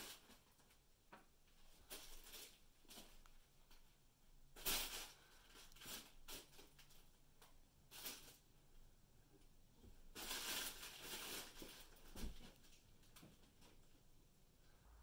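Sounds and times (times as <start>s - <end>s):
fabric tunnel crinkling and rustling: 9.8s - 14.0s.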